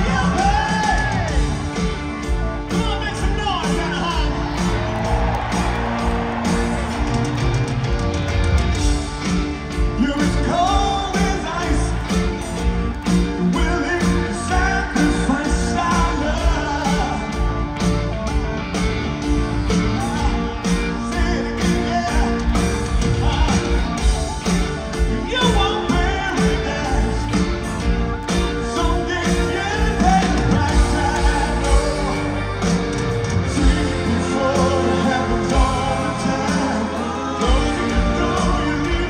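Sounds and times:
live rock band: 0:00.0 - 0:39.0
person singing lead vocal: 0:10.0 - 0:12.2, 0:13.4 - 0:17.4, 0:20.0 - 0:24.0, 0:25.0 - 0:27.5, 0:28.6 - 0:32.8, 0:33.4 - 0:39.0.

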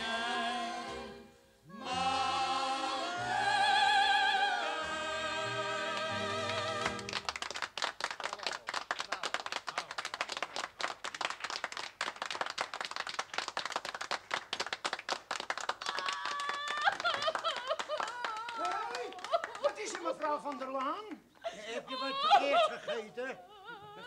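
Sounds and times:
audience applauding: 0:05.9 - 0:21.0
woman wailing: 0:21.7 - 0:24.0.

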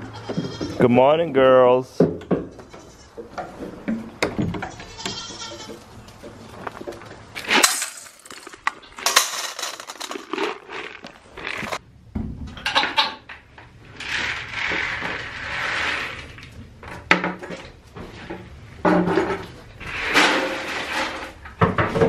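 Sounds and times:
goats bleating: 0:00.0 - 0:00.8, 0:04.7 - 0:05.8
feed pellets rattling into steel bowl: 0:07.4 - 0:11.8.

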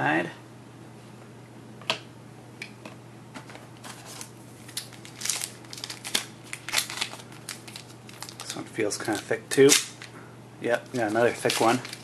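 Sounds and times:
low steady hum: 0:00.0 - 0:12.0
cards clicking and rustling: 0:03.8 - 0:10.1, 0:10.7 - 0:12.0.

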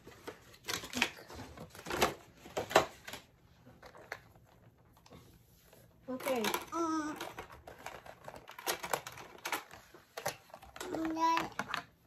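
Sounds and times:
plastic toy pieces clicking: 0:06.2 - 0:12.0.

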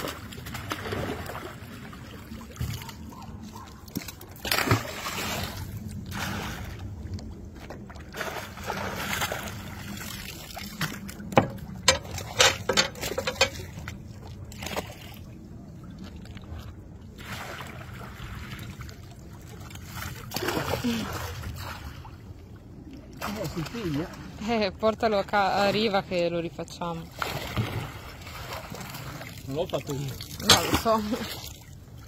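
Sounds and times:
fish splashing in water: 0:00.0 - 0:07.0, 0:07.7 - 0:12.4, 0:17.2 - 0:22.1, 0:27.1 - 0:32.0.

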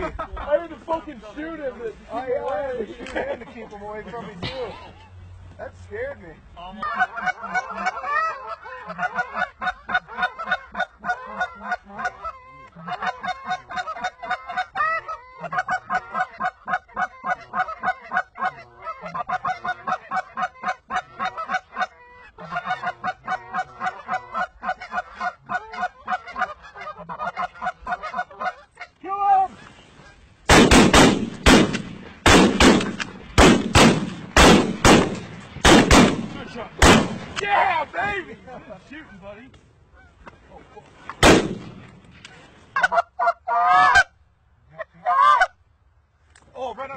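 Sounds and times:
geese honking and clucking: 0:06.6 - 0:30.6, 0:38.6 - 0:45.6
shotgun shots: 0:30.5 - 0:37.4, 0:41.2 - 0:41.9.

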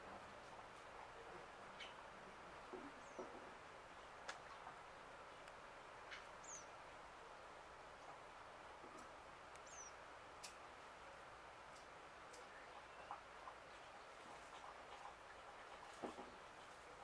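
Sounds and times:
small birds chirping: 0:01.1 - 0:08.3, 0:08.9 - 0:10.6, 0:11.8 - 0:17.0
faint ticks: 0:08.8 - 0:10.6, 0:11.7 - 0:13.2.

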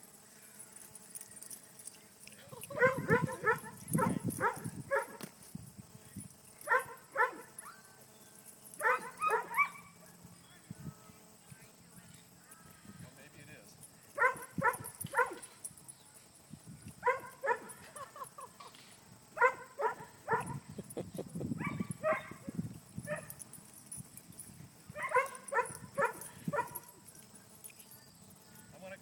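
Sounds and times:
dog barking: 0:02.7 - 0:05.2, 0:06.7 - 0:07.8, 0:08.8 - 0:09.9, 0:14.2 - 0:15.5, 0:17.0 - 0:17.8, 0:19.4 - 0:20.6, 0:21.6 - 0:22.4, 0:25.0 - 0:26.9.

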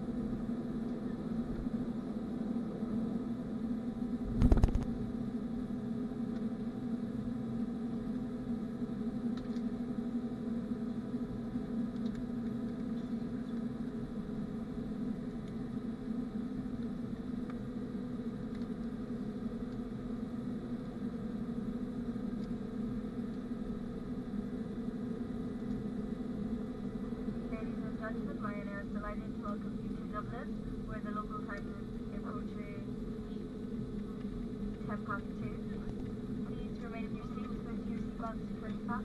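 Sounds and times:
engine and airflow hum: 0:00.0 - 0:39.0.

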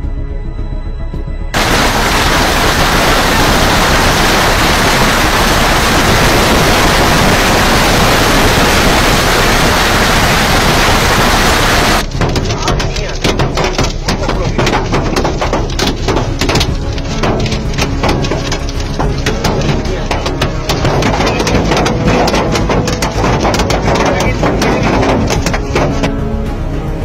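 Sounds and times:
music: 0:00.0 - 0:01.6, 0:12.0 - 0:27.0
hail hitting car windscreen: 0:01.6 - 0:26.2
heavy rain pounding: 0:01.6 - 0:26.4.

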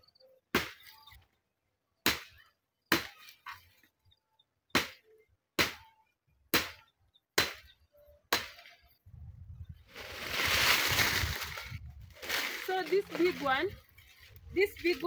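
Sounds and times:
machete chopping wooden branch: 0:00.5 - 0:01.0, 0:02.0 - 0:03.4, 0:04.8 - 0:05.0, 0:05.6 - 0:05.9, 0:06.5 - 0:06.8, 0:07.4 - 0:07.7, 0:08.3 - 0:08.7.

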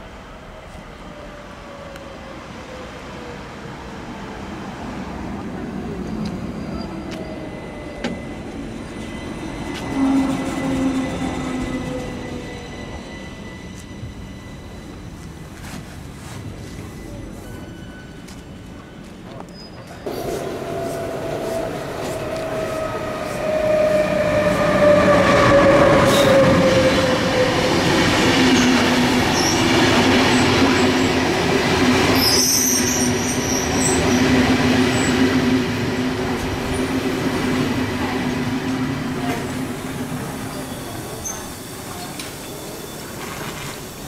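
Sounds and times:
electric train whine: 0:06.2 - 0:15.6, 0:20.0 - 0:44.0.

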